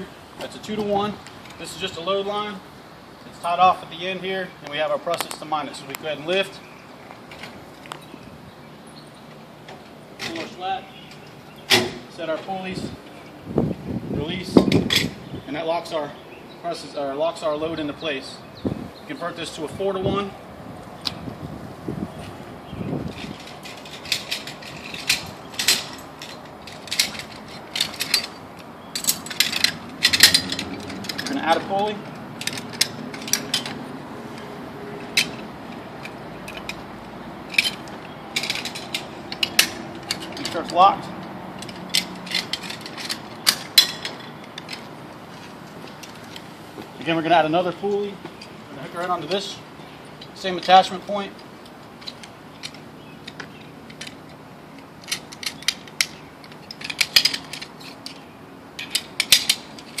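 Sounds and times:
metal hardware clinking: 0:23.1 - 0:36.9, 0:37.5 - 0:46.4, 0:47.6 - 1:00.0.

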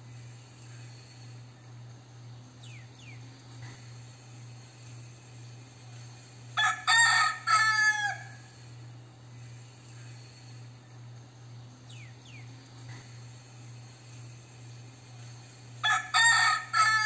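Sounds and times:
rooster crowing: 0:06.6 - 0:08.6, 0:15.8 - 0:17.0.

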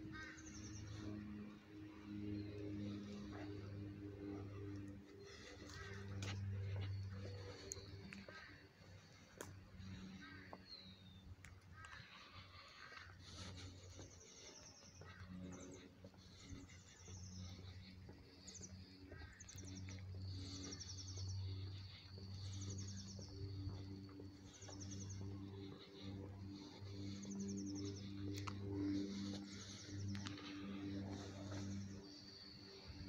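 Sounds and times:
steady low hum: 0:00.0 - 0:33.0
small birds chirping: 0:00.1 - 0:33.0.

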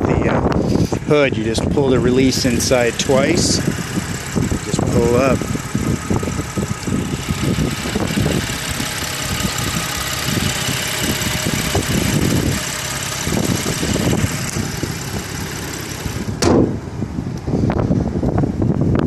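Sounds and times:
wind on microphone: 0:00.0 - 0:19.0
car engine idling: 0:00.2 - 0:17.6
car hood slamming shut: 0:16.4 - 0:16.8.

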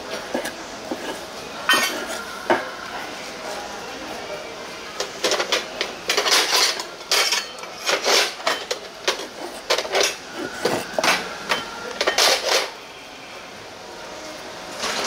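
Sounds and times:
dishes and utensils clattering: 0:00.0 - 0:02.7, 0:05.0 - 0:12.8.

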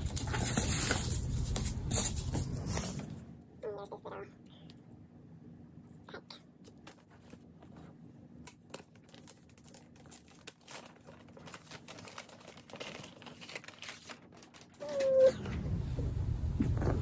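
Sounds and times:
wrapping paper crinkling: 0:00.0 - 0:02.7, 0:06.8 - 0:15.3.

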